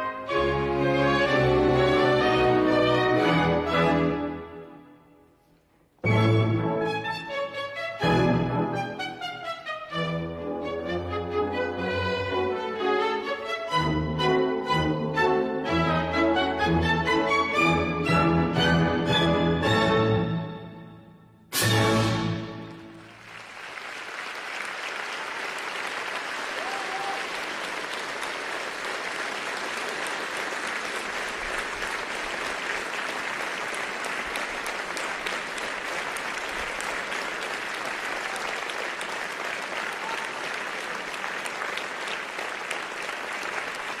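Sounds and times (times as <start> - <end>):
audience applauding: 22.6 - 44.0.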